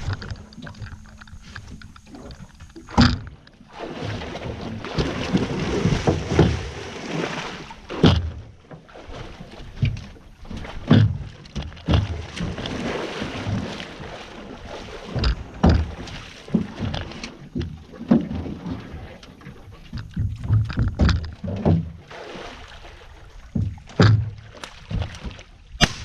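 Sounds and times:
alligator thrashing in water: 0.0 - 26.0
knocks on boat: 2.4 - 3.4, 4.6 - 6.8, 7.9 - 8.6, 10.8 - 13.8, 15.1 - 18.8, 19.9 - 22.1, 23.5 - 25.9.

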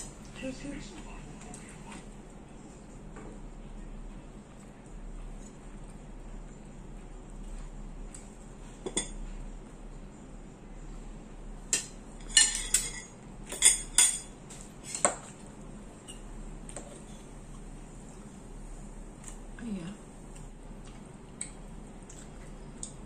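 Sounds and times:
cutlery clinking on plates: 11.7 - 15.4.

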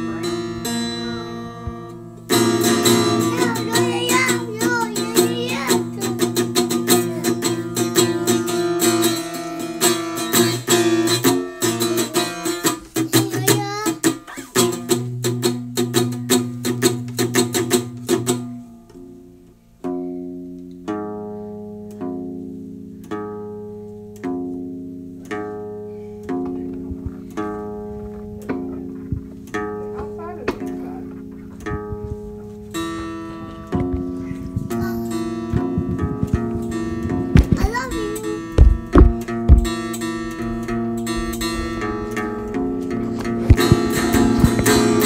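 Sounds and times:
plucked string instrument music: 0.0 - 45.0.

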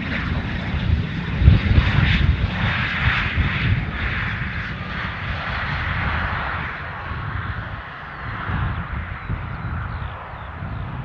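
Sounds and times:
jet engines of passing plane: 0.0 - 11.0.

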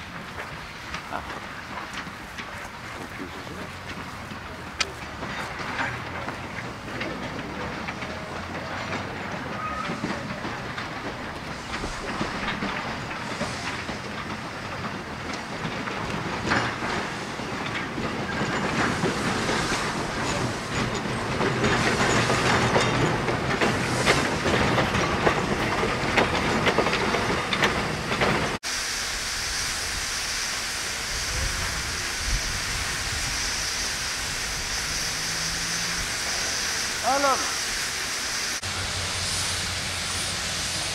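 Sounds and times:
locomotive clanks and wheel clicks: 0.0 - 28.6
steam hissing: 0.0 - 40.9
high-pitched steam hiss: 11.4 - 14.7, 27.8 - 40.9.

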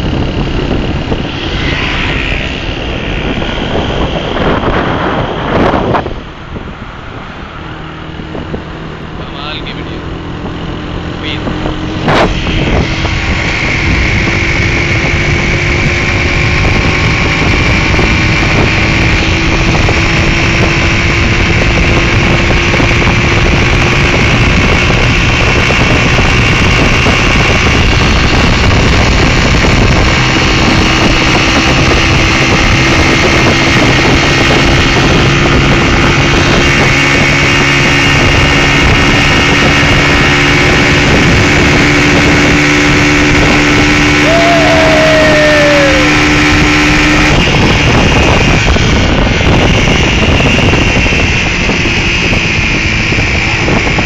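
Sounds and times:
faint rising whine: 0.0 - 14.2
car engine and road drone: 0.0 - 54.0.

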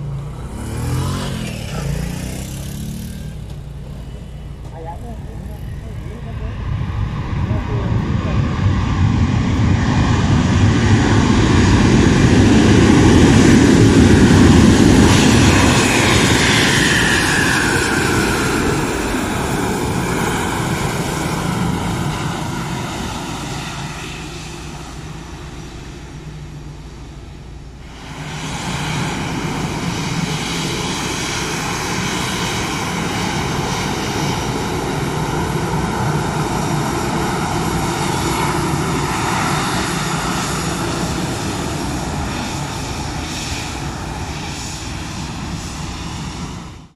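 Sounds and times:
high engine whine: 0.0 - 46.9
jet engines running: 0.0 - 46.9.

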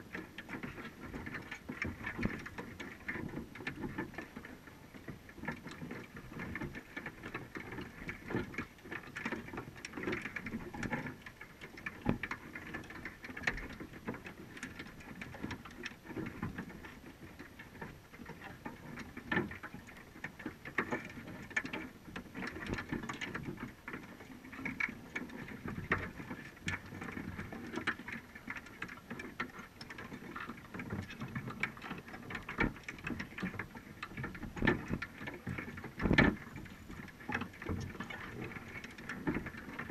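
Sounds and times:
low rumble of water: 0.0 - 39.9
underwater crackling and clicking: 0.0 - 39.9.

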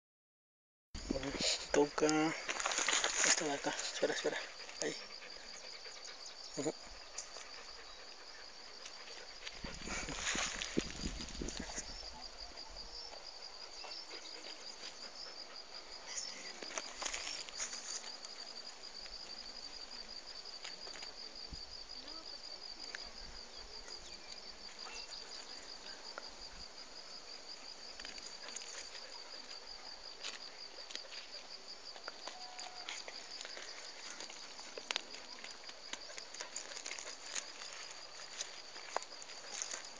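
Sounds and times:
leaves rustling: 1.0 - 4.9, 9.5 - 11.9, 16.4 - 18.9, 32.6 - 39.9
cricket trilling: 1.0 - 39.9.

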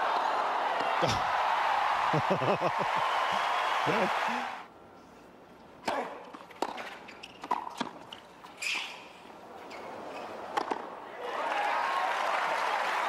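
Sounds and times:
crowd applause: 0.0 - 4.7, 11.2 - 13.0
racket hitting tennis ball: 10.5 - 10.9
tennis ball bouncing: 10.5 - 11.0.

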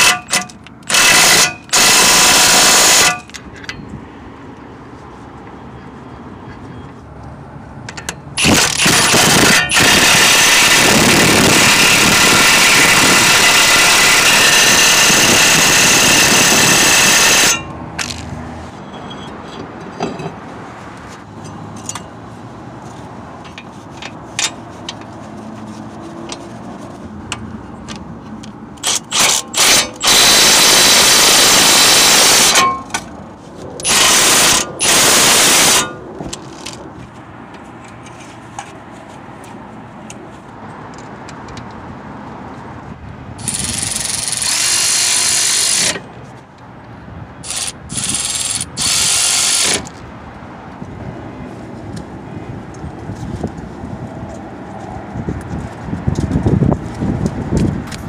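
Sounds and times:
cordless power tool running: 8.4 - 17.6.

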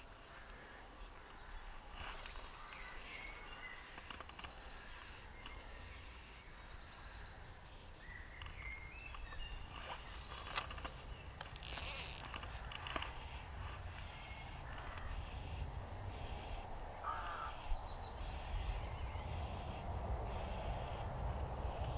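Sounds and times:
small birds singing: 0.0 - 21.9
wind rumble on microphone: 7.4 - 21.9.

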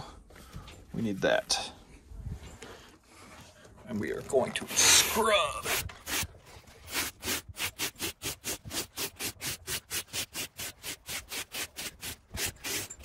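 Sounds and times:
scrub brush on wet fabric: 4.7 - 13.0.

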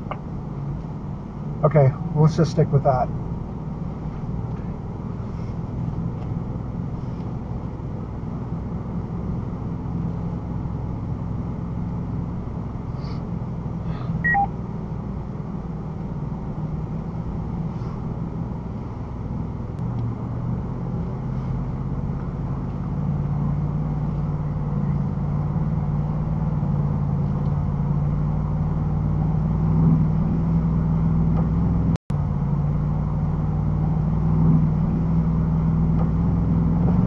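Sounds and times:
truck engine running: 0.0 - 37.0
two-note electronic beep: 14.2 - 14.5.

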